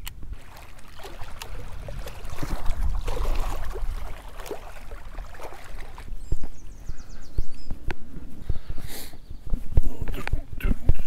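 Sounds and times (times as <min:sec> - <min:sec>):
wind buffeting microphone: 0:00.0 - 0:11.0
waves splashing on rocks: 0:00.4 - 0:06.1.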